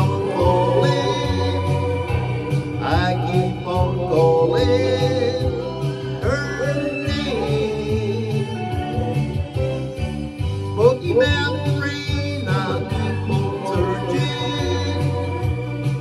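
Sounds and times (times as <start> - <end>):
man singing country song: 0.0 - 1.9, 2.7 - 9.0, 10.7 - 15.4
acoustic guitar: 0.0 - 16.0
steady beat: 0.0 - 16.0.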